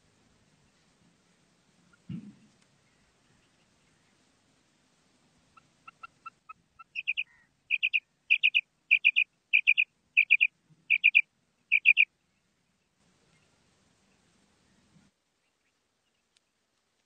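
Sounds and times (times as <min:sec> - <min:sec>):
quail calling: 0:05.5 - 0:12.1.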